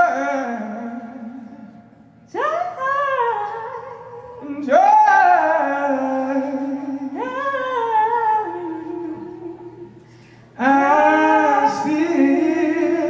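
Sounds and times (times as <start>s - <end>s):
faint low hum: 0.0s - 13.0s
woman singing unaccompanied: 2.3s - 9.9s.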